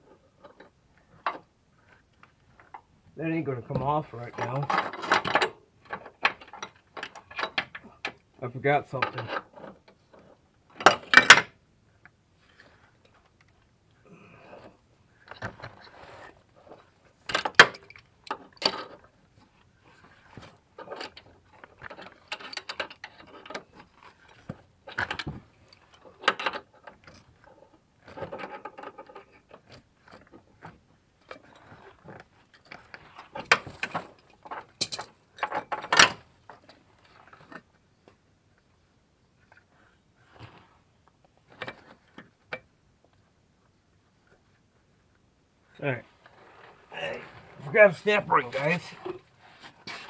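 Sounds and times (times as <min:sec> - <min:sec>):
hand tools clinking and scraping: 0:14.3 - 0:37.6, 0:46.0 - 0:50.0.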